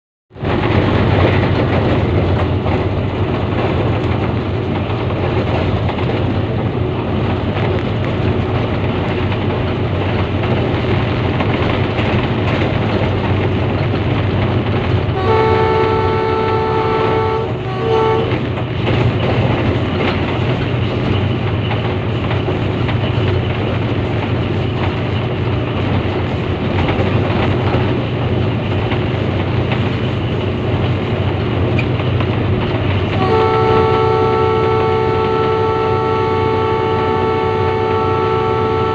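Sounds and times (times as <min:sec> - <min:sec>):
locomotive rumbling: 0:00.3 - 0:38.9
train horn blast: 0:15.2 - 0:18.4, 0:33.1 - 0:38.9.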